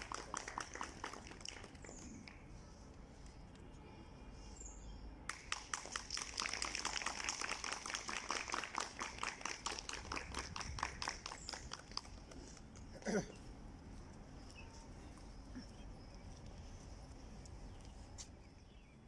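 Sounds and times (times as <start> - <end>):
small group clapping: 0.0 - 2.5, 5.2 - 12.9
faint bird chirps: 14.4 - 16.9.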